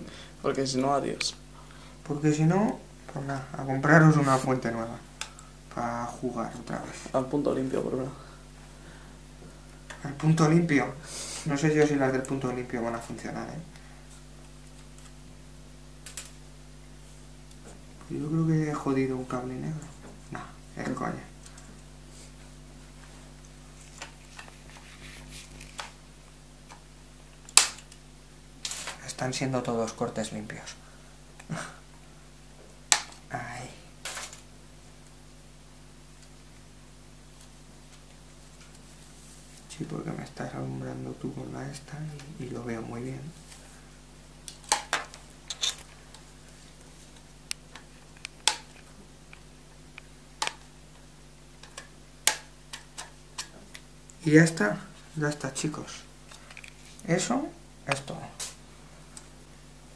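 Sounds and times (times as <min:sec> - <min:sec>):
wire cutters snapping cable: 0:27.4 - 0:28.0, 0:44.4 - 0:45.9.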